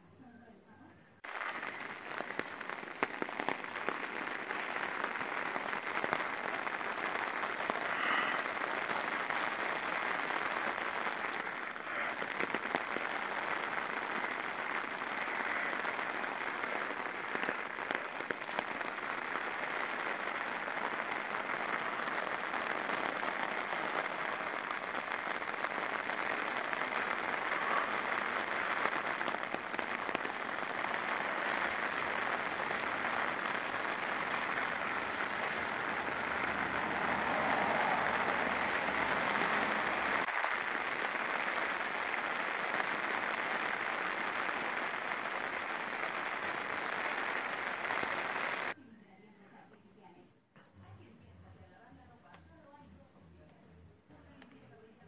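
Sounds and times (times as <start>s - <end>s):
rain on wet pavement: 1.2s - 48.8s.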